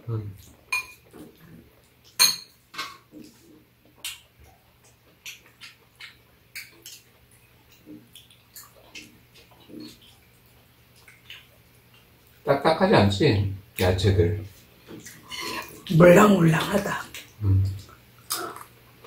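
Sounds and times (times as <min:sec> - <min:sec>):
faint low hum: 0:00.0 - 0:19.0
spoons clinking in ceramic bowls: 0:00.7 - 0:01.0
wet mouth sounds: 0:17.1 - 0:18.8.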